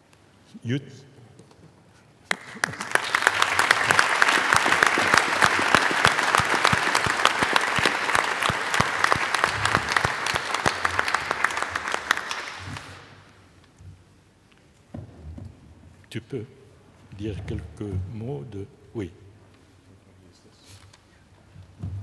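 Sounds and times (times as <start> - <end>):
audience applauding: 2.3 - 13.4.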